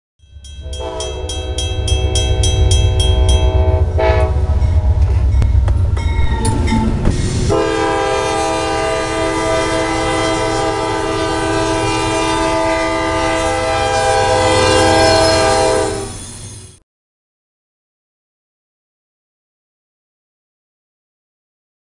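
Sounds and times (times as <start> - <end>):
train rumbling: 0.3 - 16.8
locomotive air horn blasts: 0.6 - 5.4, 7.4 - 16.2.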